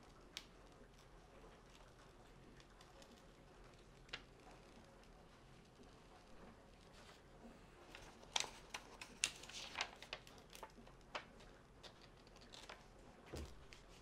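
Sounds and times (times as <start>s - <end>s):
paper and plastic crinkling: 6.4s - 14.0s.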